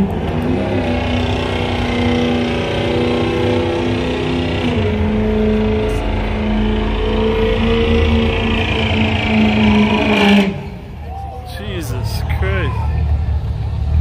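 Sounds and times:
car engine revving high: 0.0 - 11.0.

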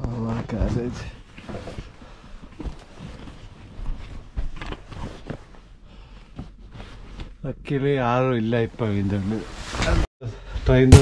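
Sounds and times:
backpack and clothing rustling: 0.7 - 7.4.

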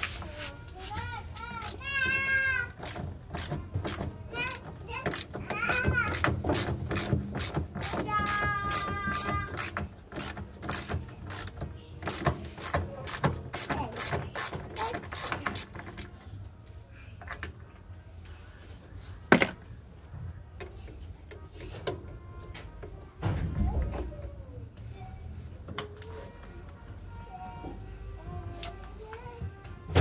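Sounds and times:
ratchet wrench clicking: 2.8 - 16.1.

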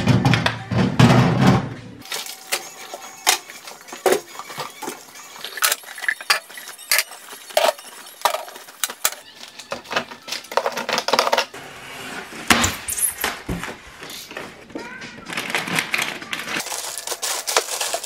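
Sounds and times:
jars clinking on glass shelves: 2.0 - 11.5
rustling handling noise: 2.0 - 18.0.

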